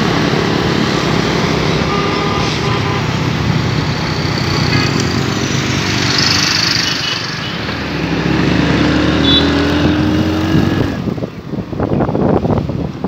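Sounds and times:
motorcycle engine accelerating: 0:03.7 - 0:11.2
wind buffeting microphone: 0:09.6 - 0:13.0.

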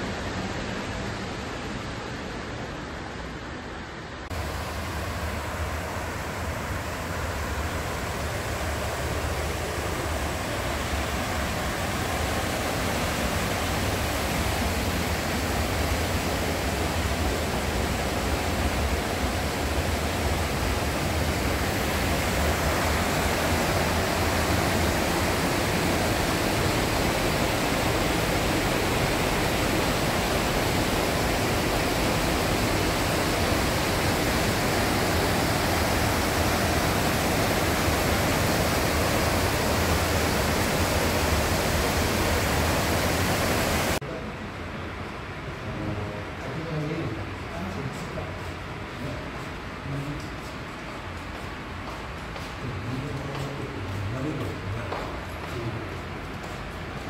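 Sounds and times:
river rushing over rocks: 0:04.3 - 0:44.0.

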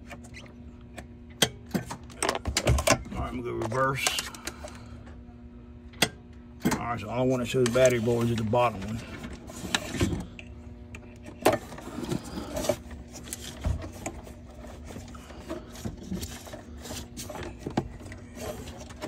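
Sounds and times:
faint steady hum: 0:00.0 - 0:19.0.

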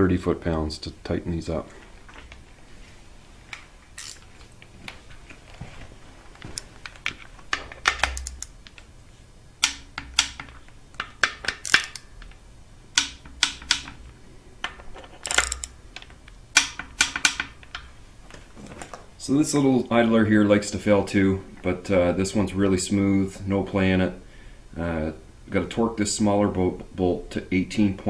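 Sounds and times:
torque wrench ratchet clicking: 0:04.0 - 0:04.3, 0:07.8 - 0:08.8, 0:09.6 - 0:12.4, 0:13.0 - 0:14.0, 0:15.2 - 0:17.9.

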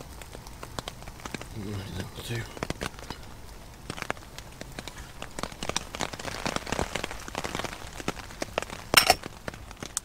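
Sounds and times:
rain pattering on tent fabric: 0:00.0 - 0:10.0.

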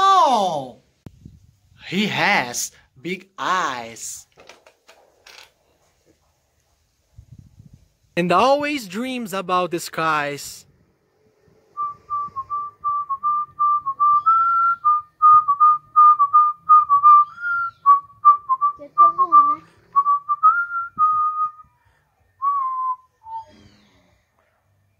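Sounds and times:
person whistling a tune: 0:11.8 - 0:21.8, 0:22.4 - 0:23.7.

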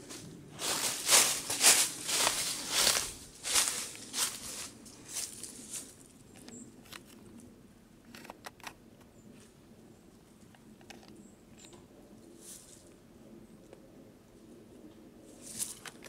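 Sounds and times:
footsteps on debris-strewn floor: 0:00.6 - 0:05.8.

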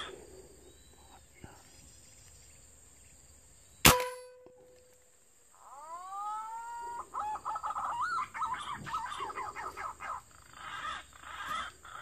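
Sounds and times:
bird calling and warbling: 0:05.6 - 0:12.0.

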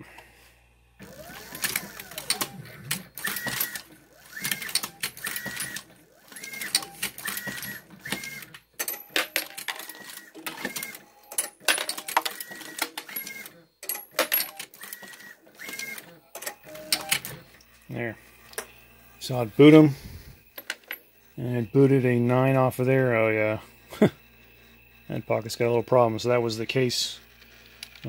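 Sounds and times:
reloading press clanking: 0:01.0 - 0:17.4.

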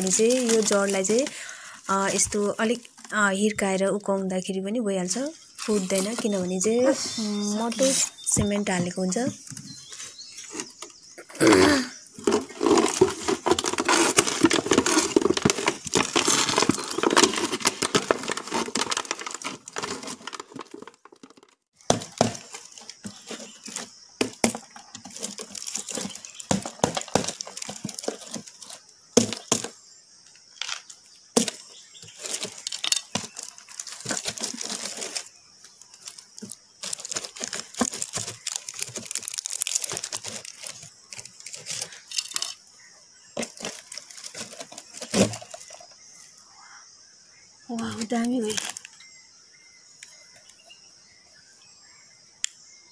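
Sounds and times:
dried cement crackling and cracking: 0:00.0 - 0:03.2, 0:10.6 - 0:42.6
plastic bottle crinkling: 0:00.0 - 0:03.6, 0:05.6 - 0:29.7, 0:30.6 - 0:42.5, 0:43.4 - 0:46.0.

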